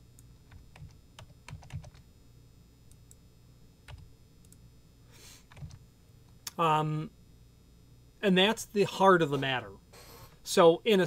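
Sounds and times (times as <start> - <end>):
low steady hum: 0.0 - 11.0
computer mouse and keyboard clicks: 5.5 - 5.8.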